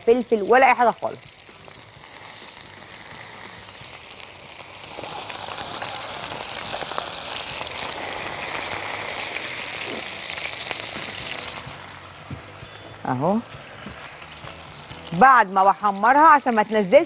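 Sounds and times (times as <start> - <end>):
chicken sizzling in hot oil: 0.0 - 17.0.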